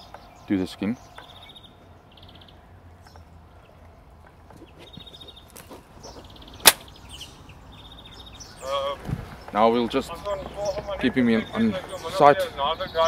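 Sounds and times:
high chirping trills: 0.0 - 3.8
dart rifle shot: 6.6 - 6.9.

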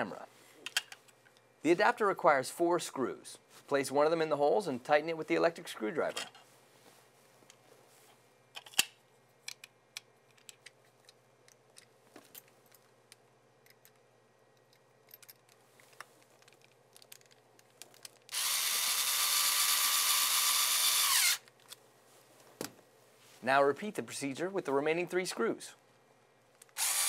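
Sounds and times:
electric screwdriver motor running: 18.3 - 21.4, 26.8 - 27.0.

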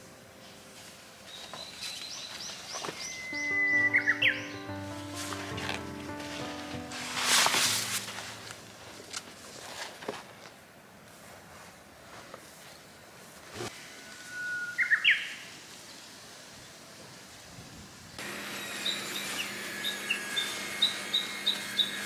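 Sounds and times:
rural outdoor ambience: 0.0 - 22.0
bird whistling song: 1.3 - 4.7, 14.1 - 15.4
plastic sheet rustling: 5.0 - 10.6.

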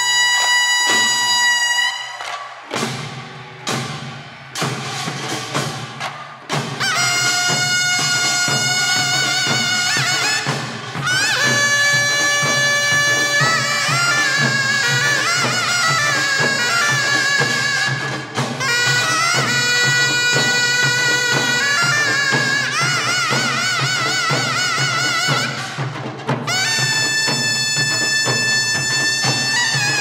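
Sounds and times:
double-reed shawm melody: 0.0 - 2.8, 6.5 - 30.0
drum strokes: 0.0 - 30.0.

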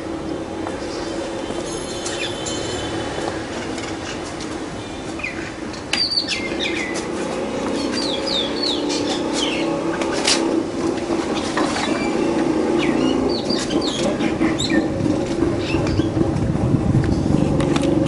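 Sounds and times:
small birds chirping: 3.9 - 10.2, 11.3 - 15.0.

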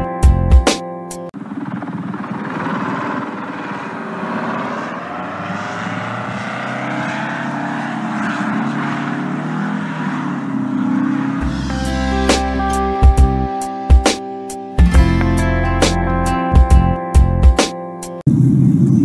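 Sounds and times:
aircraft rotor noise with whine: 1.3 - 9.0
aircraft crashing: 1.4 - 8.7.

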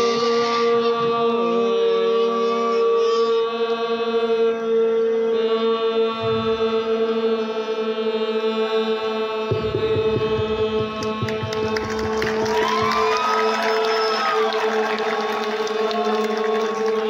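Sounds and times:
crowd noise: 9.5 - 17.0
held shouting voices: 12.1 - 17.0.

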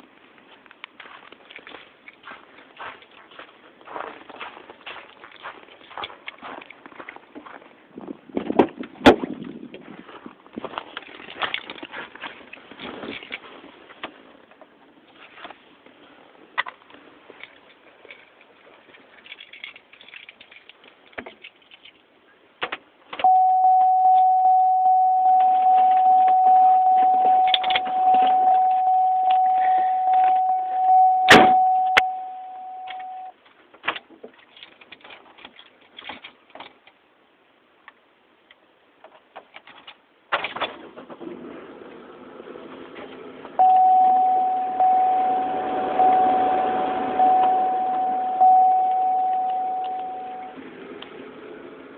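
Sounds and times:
clicks and rustling of handling: 10.6 - 16.0, 16.6 - 23.3, 32.9 - 37.0, 37.8 - 40.8
car door chime dinging: 23.2 - 33.3, 43.6 - 50.6.

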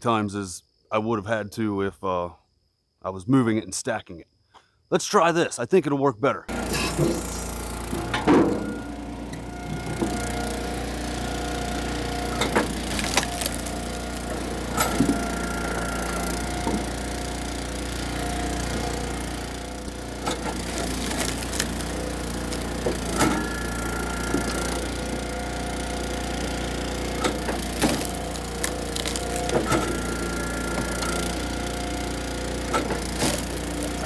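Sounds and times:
log splitter engine running: 6.5 - 34.0
wood cracking and knocking on steel: 12.3 - 15.2, 20.2 - 23.6, 27.2 - 30.0, 32.7 - 34.0.

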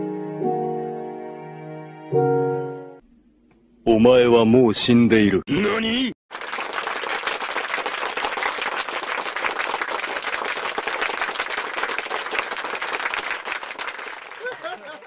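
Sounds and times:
crowd applauding: 6.3 - 15.0.

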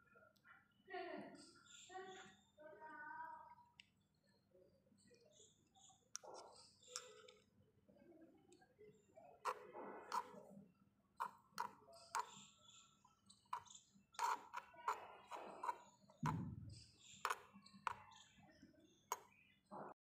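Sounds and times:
small spoon scraping a metal pot: 9.4 - 10.5, 11.2 - 12.6, 13.3 - 18.3.

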